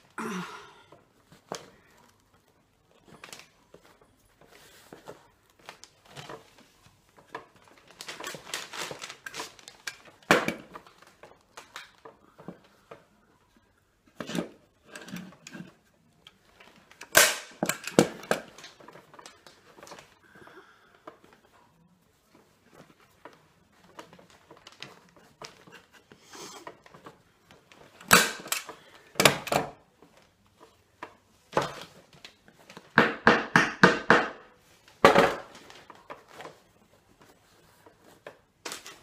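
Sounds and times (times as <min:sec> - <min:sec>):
fabric rustling: 0:01.1 - 0:12.8.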